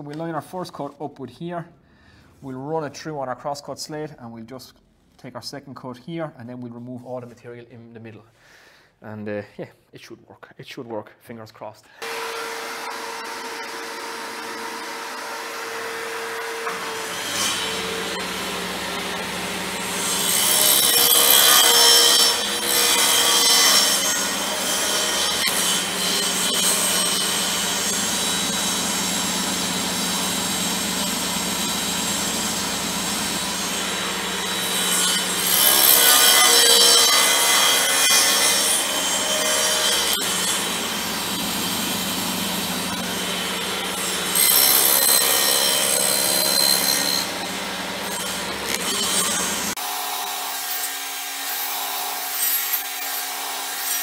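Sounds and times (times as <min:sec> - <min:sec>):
table saw cutting plywood: 0:12.0 - 0:54.0.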